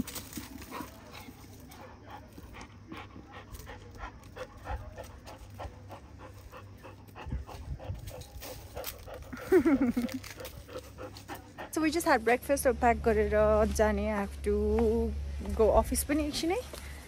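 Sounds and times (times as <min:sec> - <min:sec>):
dog panting: 0:00.0 - 0:12.3.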